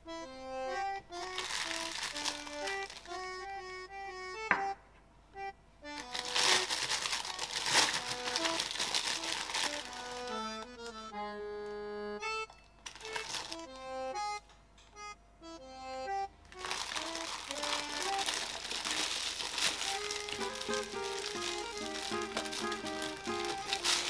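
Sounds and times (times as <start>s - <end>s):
plastic bag crinkling: 1.2s - 3.2s, 5.9s - 11.0s, 12.8s - 13.8s, 16.5s - 24.0s
background music: 13.4s - 24.0s.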